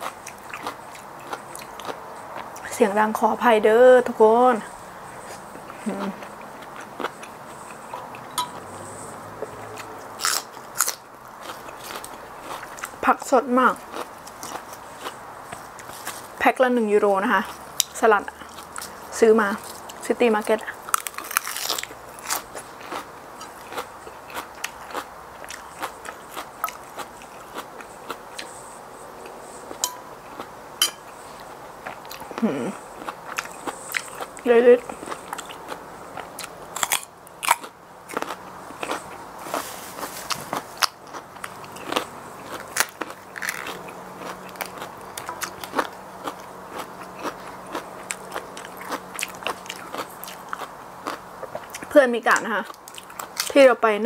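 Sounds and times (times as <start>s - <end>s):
chewing with crackly clicks: 0.0s - 2.8s, 9.4s - 16.2s, 17.4s - 28.5s, 31.4s - 39.2s, 40.3s - 53.6s
person crunching lettuce: 9.7s - 13.0s, 20.8s - 27.9s, 32.0s - 51.9s.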